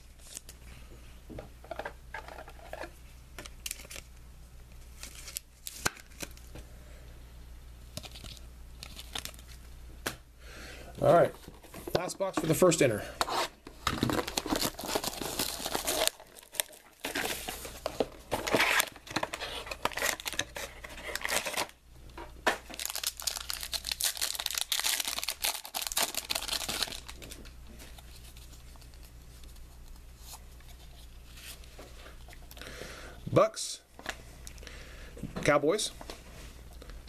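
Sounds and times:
handling of cards: 2.1s - 6.6s
plastic wrapping crinkling: 8.0s - 9.6s, 13.7s - 21.8s, 22.6s - 31.7s.

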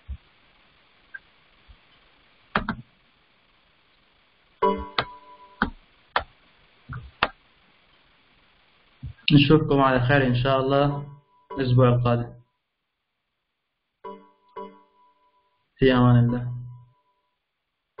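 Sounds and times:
sharp clicks and knocks: 2.5s - 2.9s.

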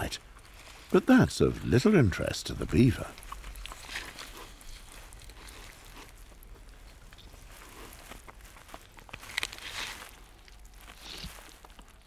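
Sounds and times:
small clicks and crackles: 2.8s - 12.0s.

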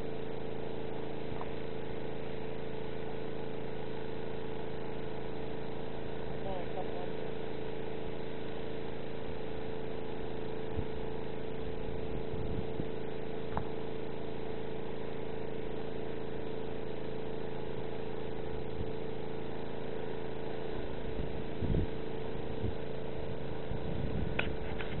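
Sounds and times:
motor hum with held tones: 0.0s - 25.0s.

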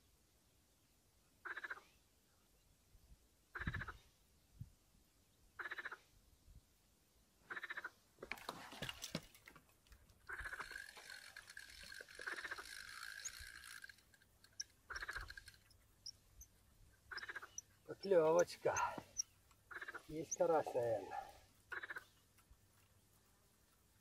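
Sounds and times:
frogs croaking: 1.4s - 1.8s, 5.6s - 6.0s, 7.5s - 8.0s, 10.3s - 22.2s.

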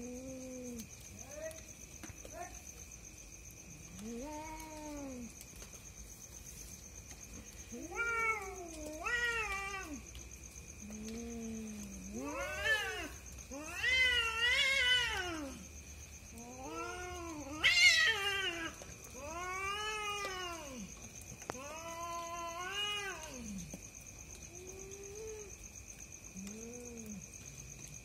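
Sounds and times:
cats yowling: 3.9s - 5.3s, 7.7s - 10.2s, 10.9s - 15.6s, 16.3s - 23.8s, 24.5s - 25.6s, 26.4s - 27.2s.

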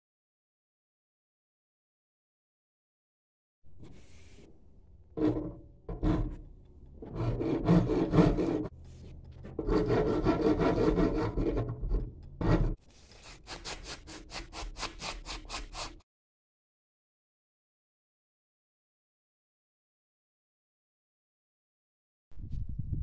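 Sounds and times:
file scraping steel blade: 3.8s - 16.0s.

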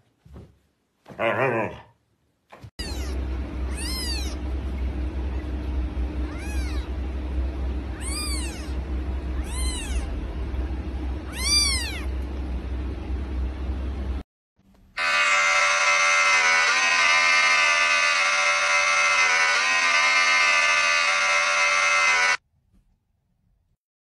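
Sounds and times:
kitten mewing: 2.8s - 4.4s, 6.3s - 7.0s, 8.0s - 8.8s, 9.4s - 10.1s, 11.3s - 12.1s
low steady rumble: 2.8s - 14.8s.

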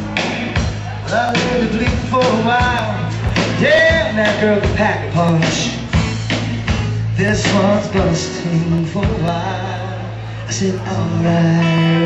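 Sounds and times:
steady drumbeat: 0.0s - 9.5s
electric guitars: 0.0s - 12.0s
sustained bass notes: 0.0s - 12.0s.

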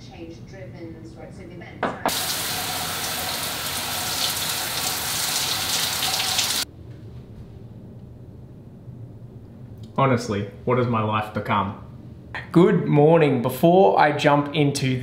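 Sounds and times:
low room hum: 0.0s - 15.0s
shower water spraying: 2.1s - 6.7s.

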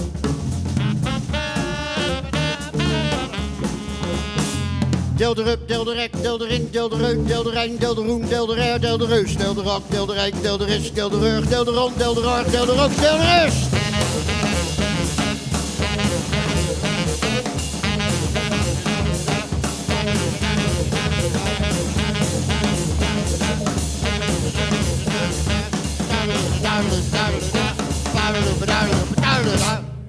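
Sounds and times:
tenor saxophone: 0.0s - 5.2s, 12.3s - 29.9s
hammond organ: 0.0s - 29.9s
drum kit strokes: 0.0s - 30.0s.

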